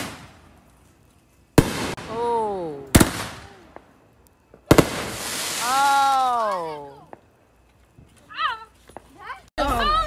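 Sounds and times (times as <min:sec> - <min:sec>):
firework shells bursting: 0:02.9 - 0:07.3.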